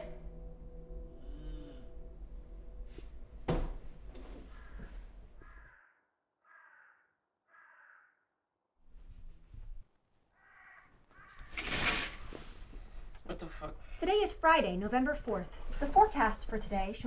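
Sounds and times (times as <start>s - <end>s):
crow cawing: 4.4s - 8.4s, 10.3s - 11.5s.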